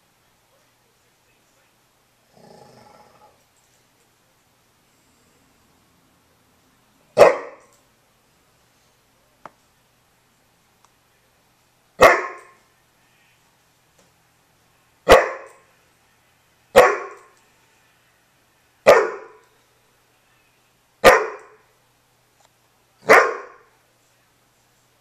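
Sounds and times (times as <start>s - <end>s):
dog barking: 7.2s - 7.7s, 12.0s - 12.6s, 15.0s - 15.6s, 16.8s - 17.3s, 18.8s - 19.4s, 21.0s - 21.6s, 23.0s - 23.7s.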